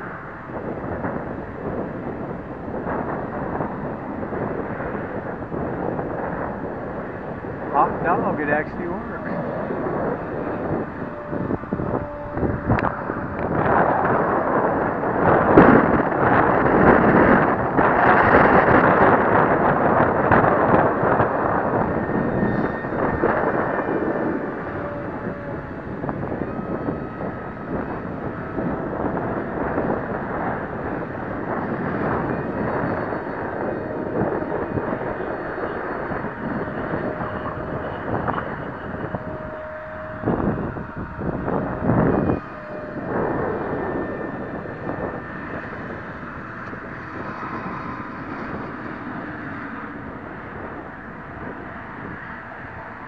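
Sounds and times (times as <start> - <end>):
model plane motor whine: 0.0 - 53.0
wind buffeting the microphone: 0.0 - 53.0.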